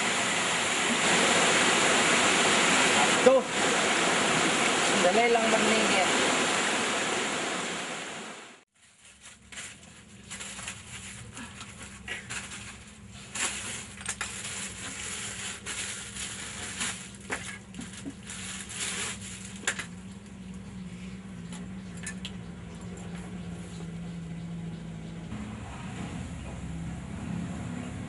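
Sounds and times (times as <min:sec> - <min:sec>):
stream water running: 0:00.0 - 0:08.6.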